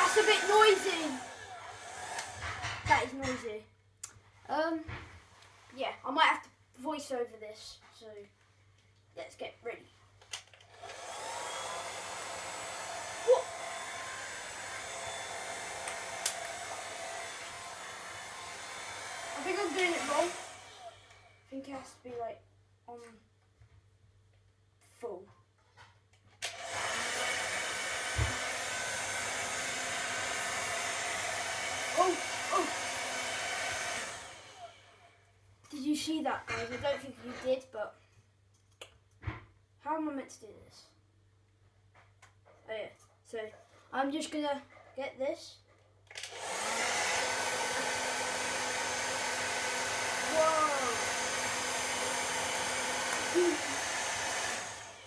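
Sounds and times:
hairdryer running: 0:00.0 - 0:03.0, 0:10.5 - 0:21.4, 0:26.4 - 0:35.3, 0:46.1 - 0:55.0.

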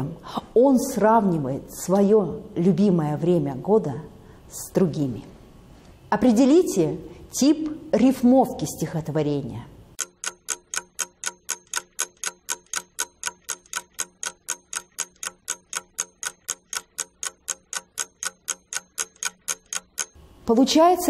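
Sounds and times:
clock ticking: 0:10.0 - 0:20.2.

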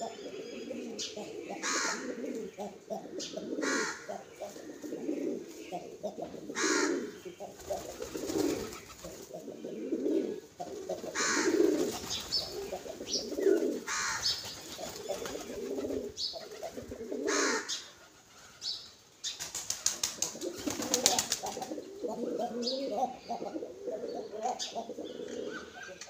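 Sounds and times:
pigeons cooing: 0:00.0 - 0:18.8, 0:19.5 - 0:26.0
wings flapping: 0:07.6 - 0:09.3, 0:10.7 - 0:16.8, 0:19.4 - 0:21.8.

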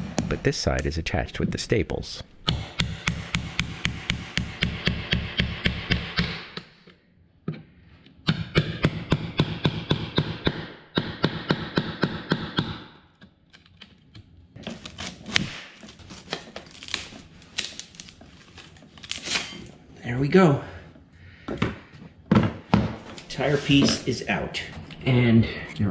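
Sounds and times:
wood cracking and snapping: 0:13.5 - 0:18.3.

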